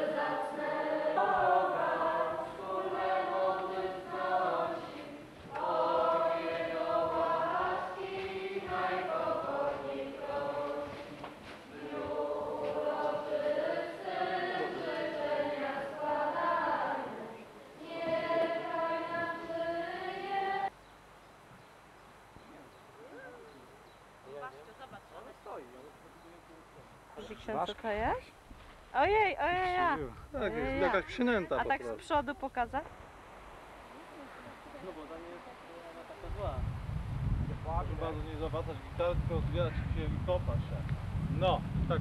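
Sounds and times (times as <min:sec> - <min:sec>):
congregation singing a hymn: 0:00.0 - 0:20.7.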